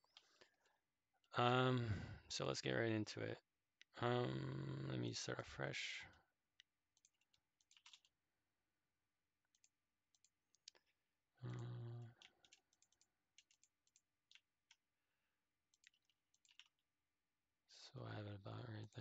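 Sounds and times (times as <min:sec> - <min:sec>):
computer mouse clicks: 0:07.0 - 0:08.1, 0:11.5 - 0:14.8, 0:15.7 - 0:16.8
person humming: 0:11.4 - 0:12.1.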